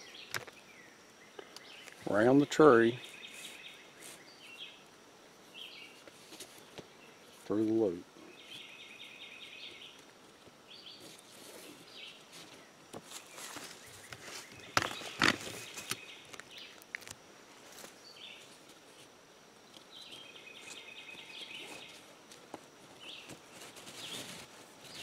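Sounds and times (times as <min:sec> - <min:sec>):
rope and canvas rustling: 0:05.5 - 0:07.5, 0:09.6 - 0:16.1, 0:20.0 - 0:25.0.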